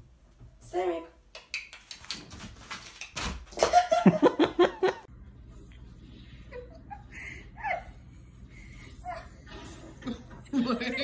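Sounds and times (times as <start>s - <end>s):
people laughing: 3.7s - 5.1s, 9.7s - 11.0s.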